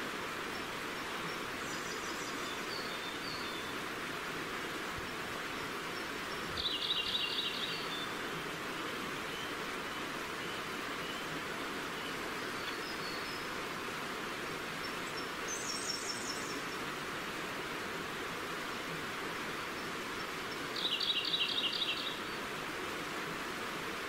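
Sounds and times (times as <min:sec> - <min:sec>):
forest stream running: 0:00.0 - 0:24.0
bird song repeated notes: 0:06.3 - 0:08.1, 0:20.8 - 0:22.4.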